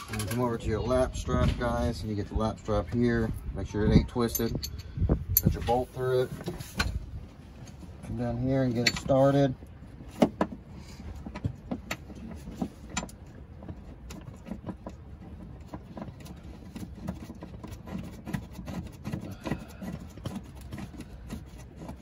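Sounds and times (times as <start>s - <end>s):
strap webbing brushing: 5.4s - 22.0s.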